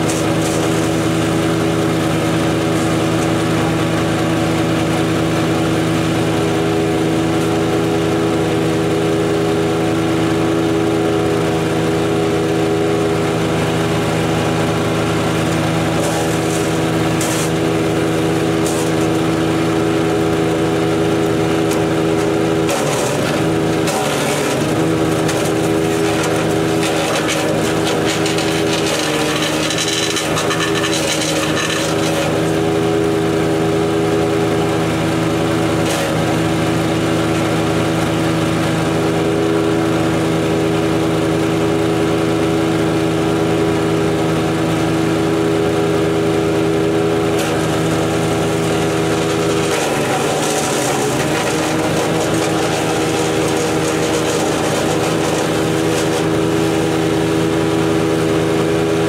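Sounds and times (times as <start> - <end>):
wood chipper engine running: 0.0 - 59.0
wood being chipped crackling: 16.0 - 19.4, 21.6 - 32.5, 48.7 - 56.3.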